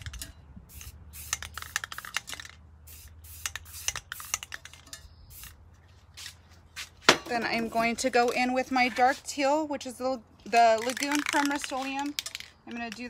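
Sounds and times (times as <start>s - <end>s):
spray paint can hissing: 0.0s - 5.6s, 10.7s - 13.0s.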